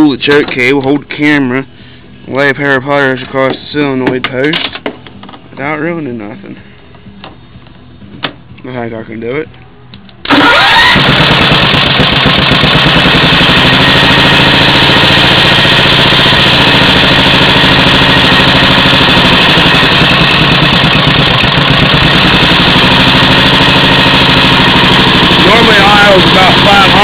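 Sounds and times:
riding mower engine running: 0:10.2 - 0:27.0.

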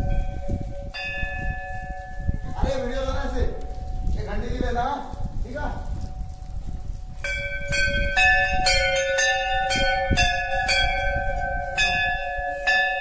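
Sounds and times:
temple bells ringing: 0:00.0 - 0:04.2, 0:07.2 - 0:13.0.

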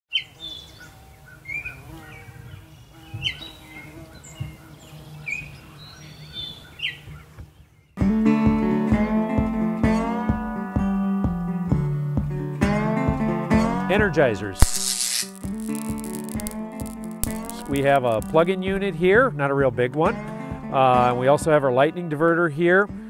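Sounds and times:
birds chirping: 0:00.1 - 0:08.0
strummed acoustic guitar music: 0:08.0 - 0:14.6, 0:15.4 - 0:22.1.

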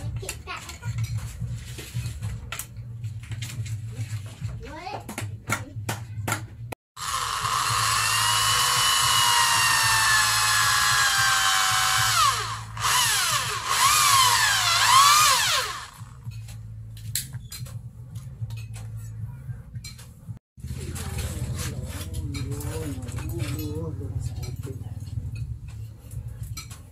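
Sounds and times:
electric drill whining: 0:07.0 - 0:16.2.

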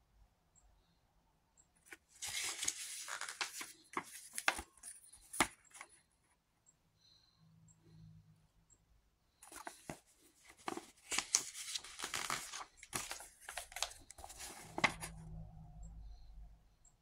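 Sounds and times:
paper booklet rustling: 0:01.8 - 0:05.9, 0:09.4 - 0:15.2.

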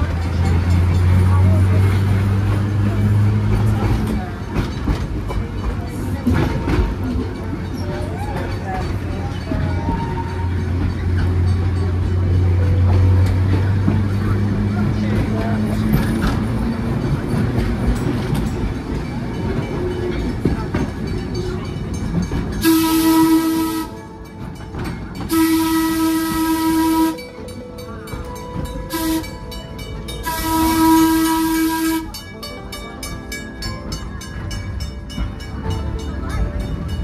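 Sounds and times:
trolley car running on track: 0:00.0 - 0:37.0
trolley whistle blasts: 0:25.3 - 0:27.3.

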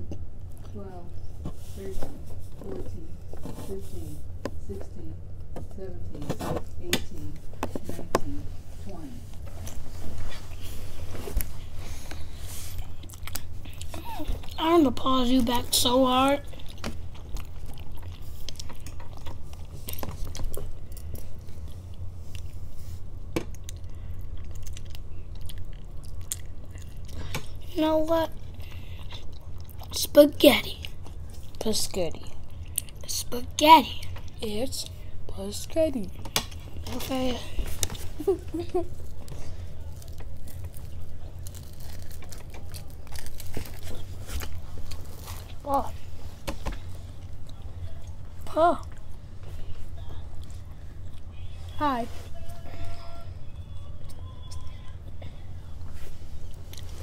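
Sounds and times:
steady low hum: 0:00.0 - 0:57.0
chewing crusty bread: 0:09.3 - 0:33.2, 0:35.7 - 0:49.2
chewing and slurping: 0:16.4 - 0:22.7.

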